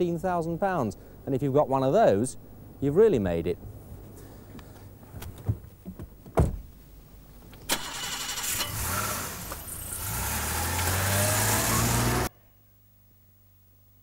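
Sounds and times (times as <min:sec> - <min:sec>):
car door shutting: 0:05.1 - 0:06.7
car engine starting and running: 0:07.4 - 0:12.3.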